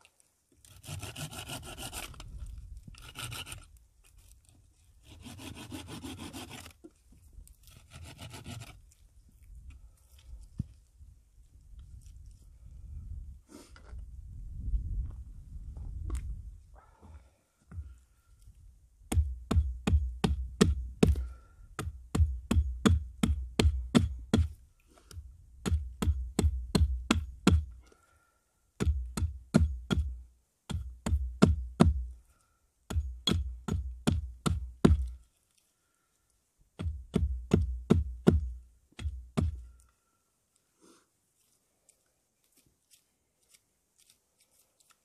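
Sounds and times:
hatchet striking wood: 19.1s - 21.2s, 21.8s - 24.6s, 25.6s - 27.7s, 28.8s - 30.1s, 30.7s - 32.0s, 32.9s - 35.2s, 36.8s - 39.6s.

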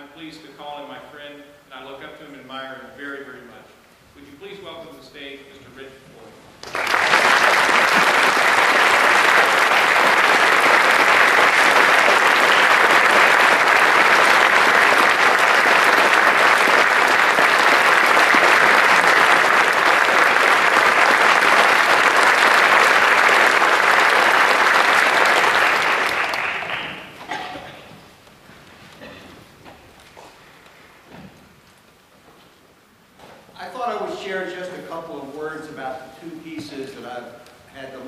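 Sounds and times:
audience applauding: 6.6s - 27.4s.

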